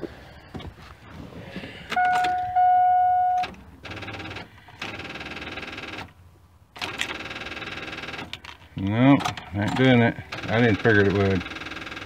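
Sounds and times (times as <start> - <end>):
electronic warning chime: 2.0 - 3.5
rapid electrical buzzing chatter: 10.3 - 12.0.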